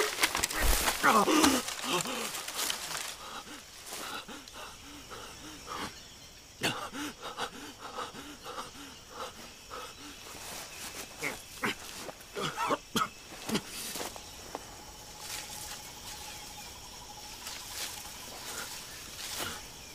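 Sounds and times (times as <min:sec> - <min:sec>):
faint crackles: 0:00.0 - 0:04.6
man panting: 0:01.1 - 0:11.9.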